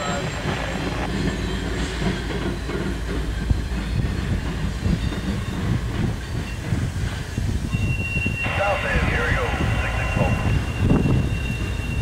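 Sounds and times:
diesel locomotives running: 0.0 - 12.0
train wheel clacks: 0.0 - 12.0.

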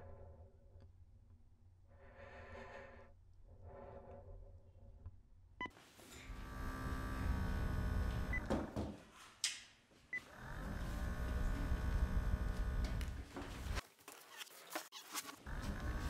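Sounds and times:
whirring hum: 6.2 - 8.5, 10.2 - 13.3.

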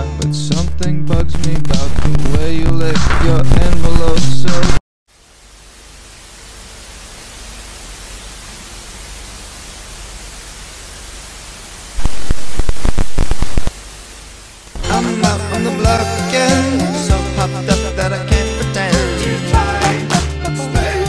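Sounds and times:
song: 0.0 - 4.8, 14.8 - 21.0
crackling static burst: 0.4 - 15.1
static hiss: 0.6 - 2.6, 4.7 - 15.4.

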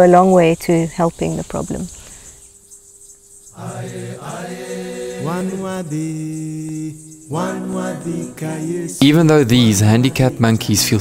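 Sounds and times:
chanting voice with gliding notes: 3.6 - 11.0.

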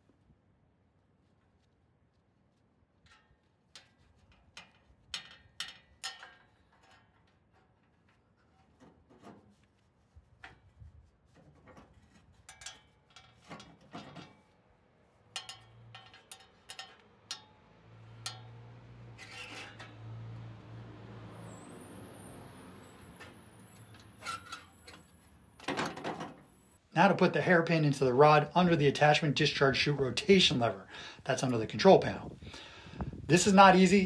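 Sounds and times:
metallic clicks of cable and spring: 15.3 - 20.0.

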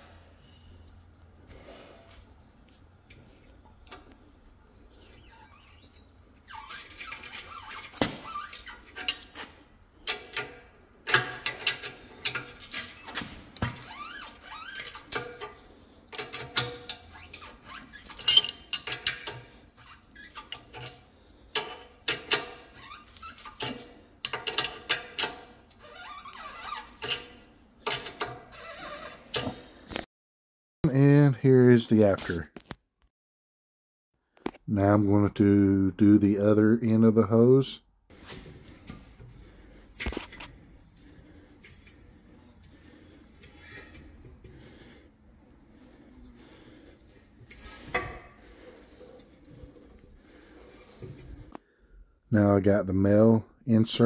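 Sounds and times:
wrench clinking on metal fitting: 18.0 - 19.5.

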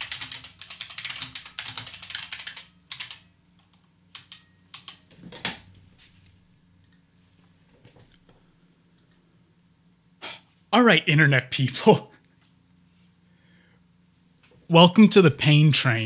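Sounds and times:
computer keyboard typing: 0.0 - 5.5.

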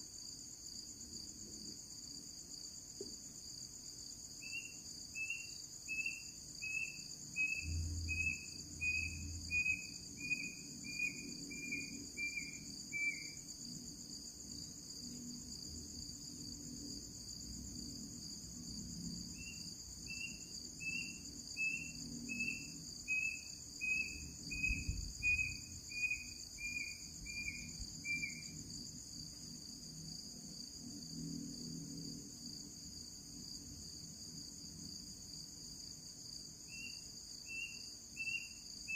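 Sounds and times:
crickets chirring: 0.0 - 38.9.

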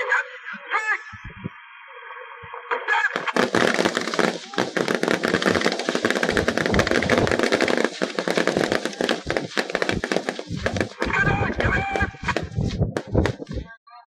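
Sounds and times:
rifle and machine-gun fire: 3.2 - 13.6.

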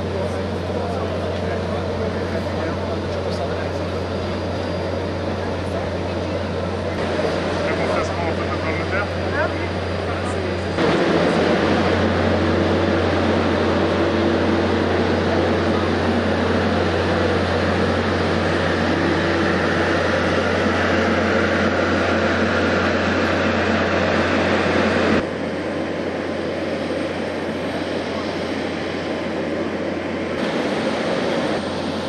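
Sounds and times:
machinery drone with low hum: 0.0 - 32.0.

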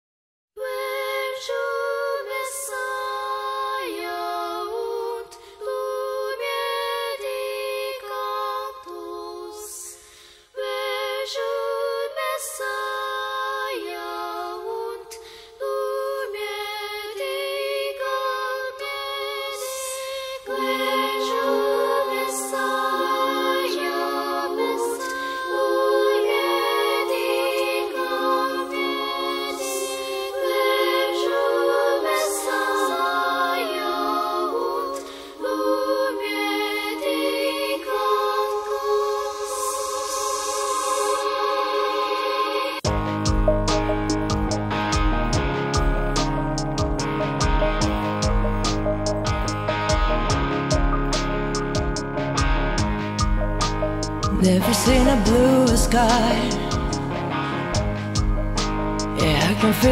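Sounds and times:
choir-like wordless singing: 0.6 - 59.9.

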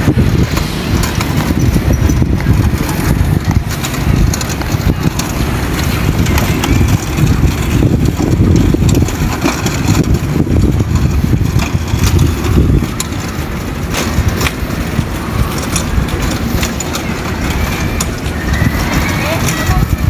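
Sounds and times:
hand cart wheels rumbling on asphalt: 0.0 - 20.0
rattling clicks: 0.0 - 20.0.

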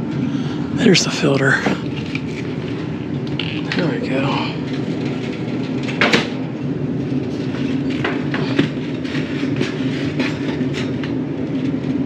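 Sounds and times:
air conditioner humming: 0.0 - 12.0.

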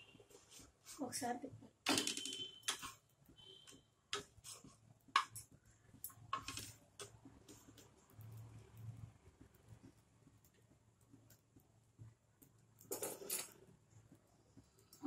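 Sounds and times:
spatula tapping and scraping griddle: 2.6 - 8.4.

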